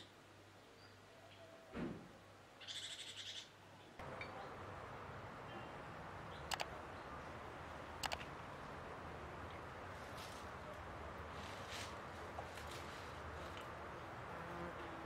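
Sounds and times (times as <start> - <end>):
sharp double clicks: 6.4 - 6.7, 8.0 - 8.3.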